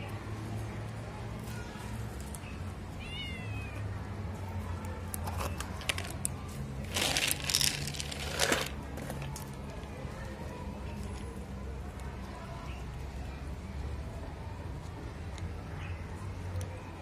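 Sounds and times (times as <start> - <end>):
kittens crunching dry kibble: 4.8 - 12.3
foil packet rustling: 6.8 - 9.4.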